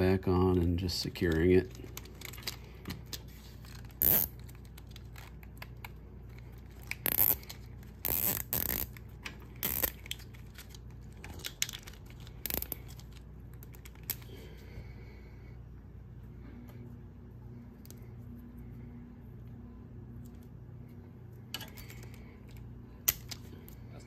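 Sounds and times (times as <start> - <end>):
zip tie ratcheting: 3.8 - 4.9, 6.8 - 9.0, 9.6 - 10.3, 11.4 - 13.1.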